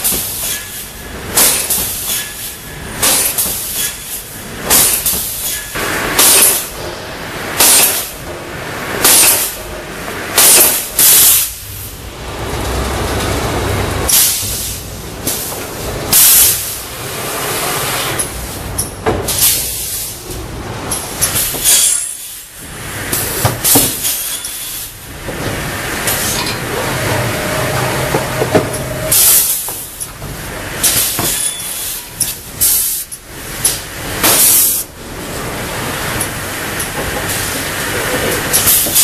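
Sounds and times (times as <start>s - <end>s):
saw machine running: 25.6s - 29.7s.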